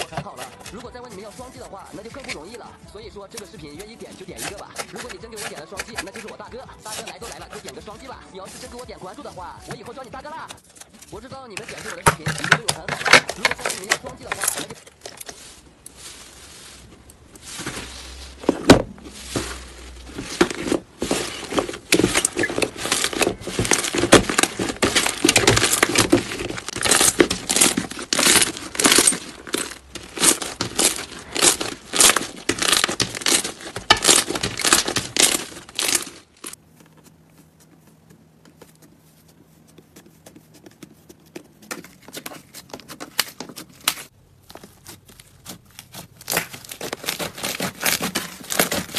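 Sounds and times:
slime squishing: 11.4 - 48.9.

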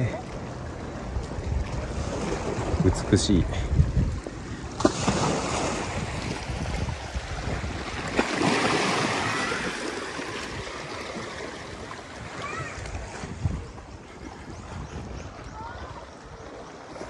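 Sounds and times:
wind buffeting microphone: 0.7 - 17.0
sea water washing on rocks: 4.3 - 13.5.

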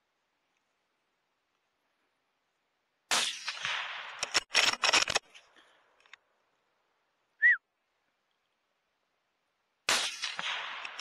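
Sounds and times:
suppressed rifle shot: 3.1 - 5.2, 9.9 - 11.0
rifle bolt metallic clicks: 4.2 - 5.4.

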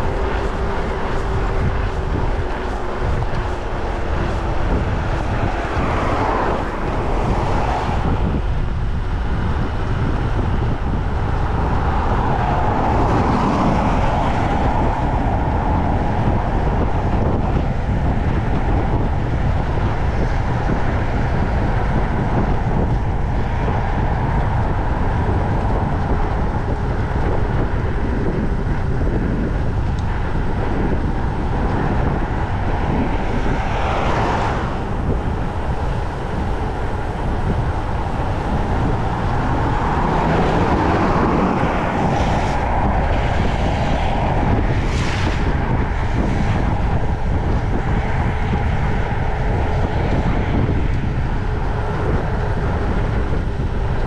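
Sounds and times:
mountain bike rolling noise: 0.0 - 54.0
wind buffeting microphone: 0.0 - 54.0.

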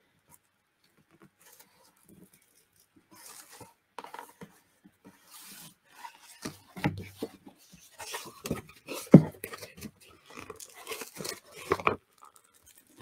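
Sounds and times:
paper and card rustling: 1.4 - 4.5, 5.1 - 13.0.

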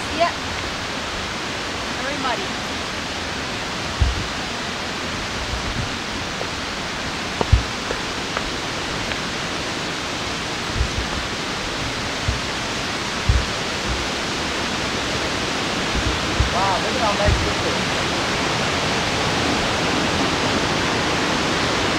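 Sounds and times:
waterfall rushing: 0.0 - 21.9
soft footsteps on trail: 3.8 - 18.0.

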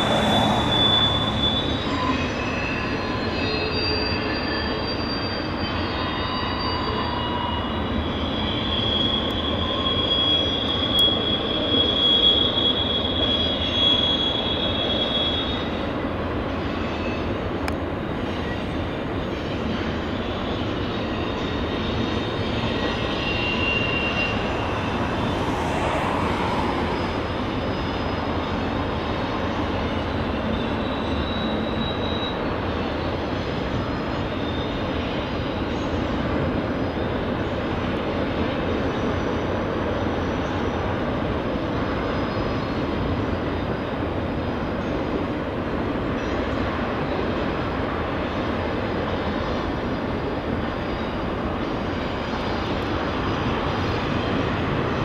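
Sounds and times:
high wheel squeal: 0.0 - 44.0, 46.0 - 55.0
steel wheels on rail: 0.0 - 55.0.

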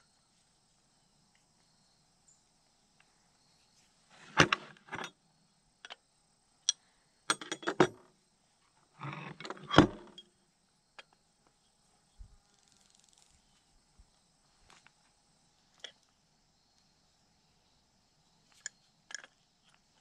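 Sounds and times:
metal tools clinking and rattling: 7.3 - 8.0.

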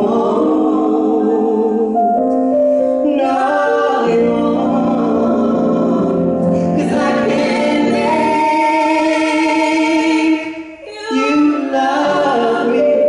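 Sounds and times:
woman and man singing duet: 0.0 - 2.0, 3.0 - 13.0.

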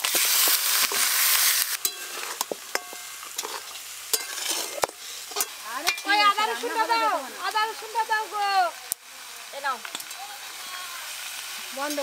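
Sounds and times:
metal spatula scraping a pan: 0.0 - 6.7
meat sizzling in hot oil: 0.0 - 12.0.

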